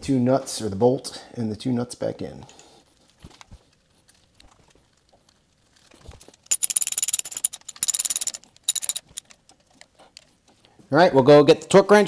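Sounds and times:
hand ratchet clicking: 0:06.5 - 0:09.2.

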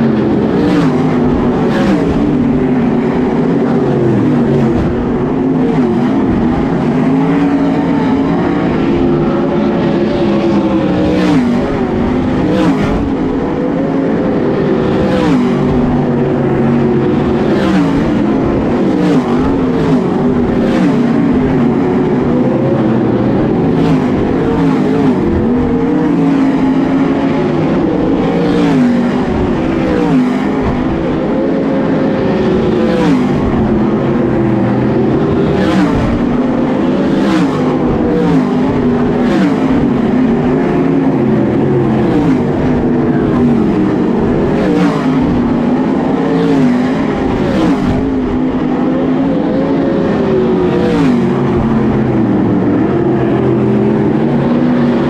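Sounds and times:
race car passing close: 0:00.0 - 0:55.0
racing car engines: 0:00.0 - 0:55.0.

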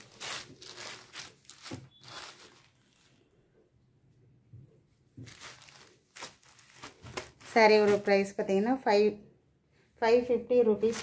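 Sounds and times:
fabric rustling and crinkling: 0:00.0 - 0:03.4, 0:05.1 - 0:08.5, 0:10.8 - 0:11.0.

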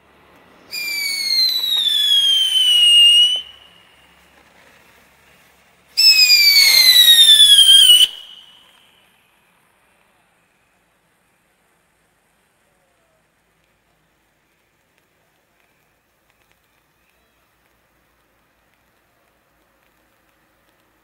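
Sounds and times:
firework whistling: 0:00.5 - 0:09.2.

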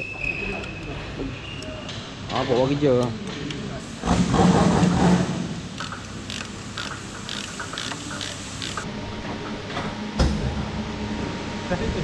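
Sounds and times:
ratchet wrench clicking: 0:05.8 - 0:08.9.

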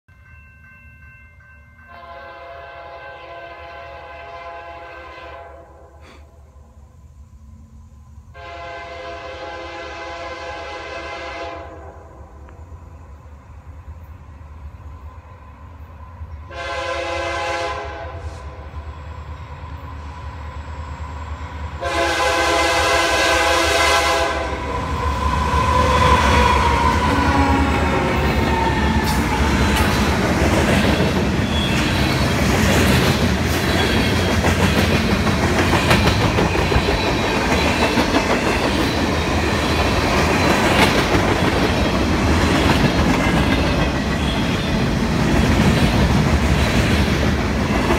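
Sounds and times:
train horn blasts: 0:01.9 - 0:06.0, 0:08.3 - 0:12.4, 0:16.4 - 0:18.8, 0:21.8 - 0:29.9
locomotive engine passing: 0:18.2 - 0:47.9
train wheels clickety-clack: 0:24.8 - 0:47.9.

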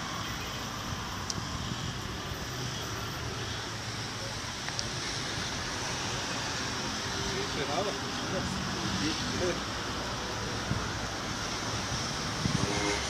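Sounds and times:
traffic rumble: 0:00.0 - 0:13.0
wind on microphone: 0:11.6 - 0:13.0.

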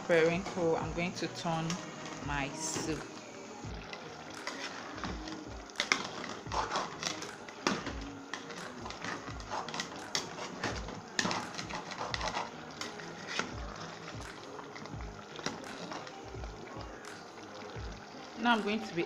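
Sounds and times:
metal spoon stirring soup in pot: 0:00.2 - 0:18.4.

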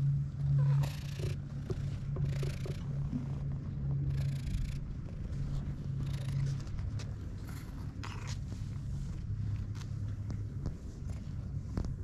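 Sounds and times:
cat purring: 0:00.6 - 0:02.8, 0:04.1 - 0:05.2, 0:06.0 - 0:06.6, 0:07.5 - 0:08.9.

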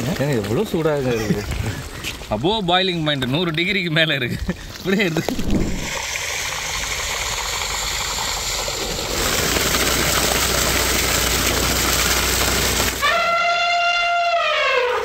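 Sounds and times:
gravy boiling in a pot: 0:04.8 - 0:13.0
trumpet-like note sliding down: 0:13.0 - 0:15.0.

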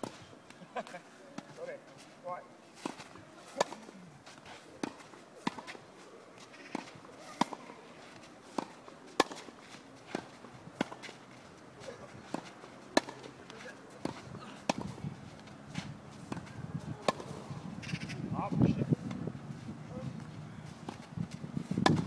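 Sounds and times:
tennis ball bouncing: 0:02.8 - 0:04.0, 0:04.8 - 0:05.8, 0:06.4 - 0:07.7, 0:08.4 - 0:11.2, 0:11.9 - 0:18.2, 0:20.8 - 0:22.0
racket hitting tennis ball: 0:02.8 - 0:05.8, 0:06.4 - 0:11.2, 0:11.8 - 0:18.2, 0:20.6 - 0:22.0.

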